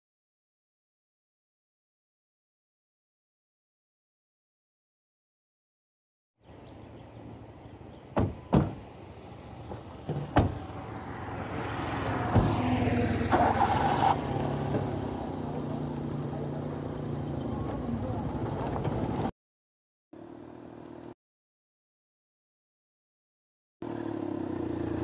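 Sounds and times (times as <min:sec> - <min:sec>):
car engine starting and running: 0:09.4 - 0:19.3, 0:23.8 - 0:25.0
car doors shutting: 0:09.7 - 0:10.7
high wavering whistle: 0:13.7 - 0:18.3.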